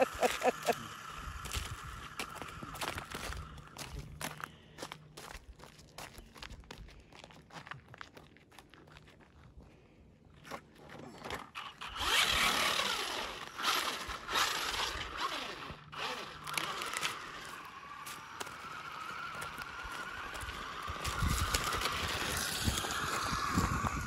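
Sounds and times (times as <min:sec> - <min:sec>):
tyres scrabbling over gravel: 0:00.0 - 0:09.4, 0:10.4 - 0:24.0
footsteps on gritty ice: 0:00.2 - 0:09.6, 0:16.0 - 0:24.0
electric motor whining: 0:11.6 - 0:24.0.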